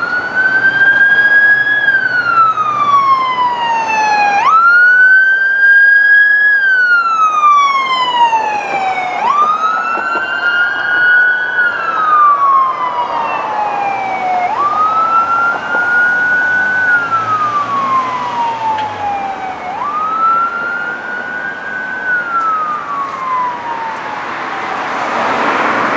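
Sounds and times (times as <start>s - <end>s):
emergency siren wailing: 0.0s - 25.9s.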